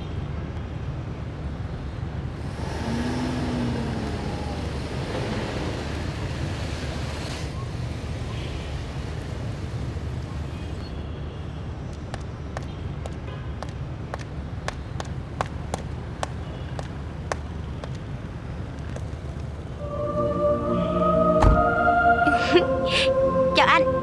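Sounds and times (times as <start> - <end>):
traffic rumble: 0.0 - 24.0
car passing: 2.4 - 10.8, 14.8 - 24.0.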